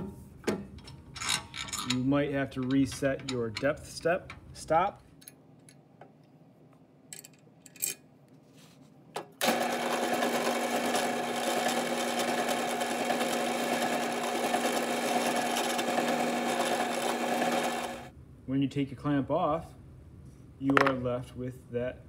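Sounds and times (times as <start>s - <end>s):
drill press boring wood: 9.4s - 18.1s.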